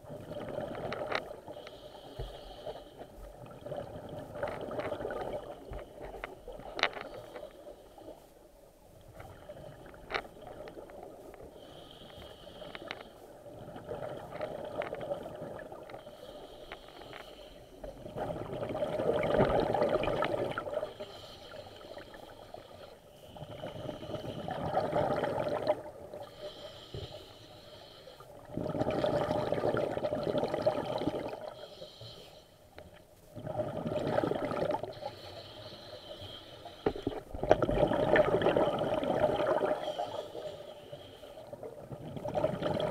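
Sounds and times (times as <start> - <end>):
regulator inhale hiss: 1.4 - 3.4, 11.4 - 13.4, 15.9 - 18.0, 20.6 - 24.8, 26.1 - 28.4, 31.4 - 33.0, 34.8 - 37.3, 39.7 - 41.6
exhaust bubbles gurgling: 28.5 - 31.4, 33.4 - 34.9, 37.4 - 39.8, 41.9 - 42.9.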